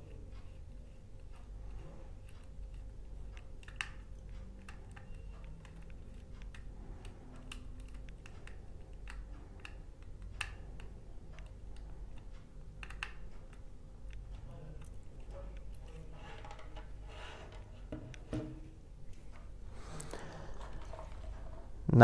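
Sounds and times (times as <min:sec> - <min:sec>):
faint low hum: 0:00.0 - 0:22.0
screwdriver clicking and scraping: 0:02.2 - 0:12.2, 0:14.8 - 0:18.3.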